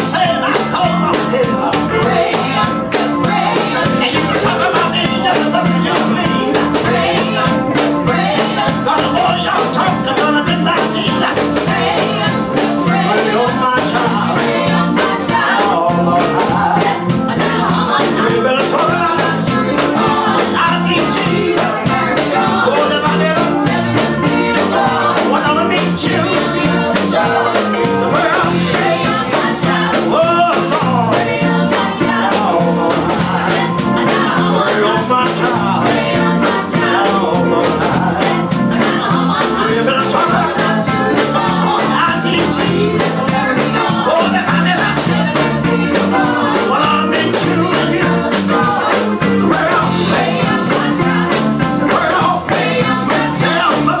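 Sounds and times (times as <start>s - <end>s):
backing singers: 0.0s - 54.0s
guitar: 0.0s - 54.0s
keyboard: 0.0s - 54.0s
woman singing lead: 0.0s - 54.0s.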